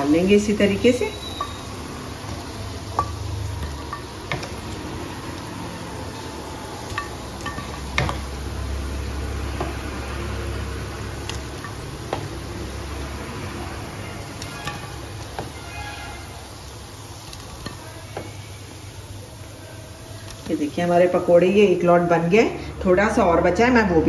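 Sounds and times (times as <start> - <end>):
deep-frying sizzle: 0.0 - 24.0.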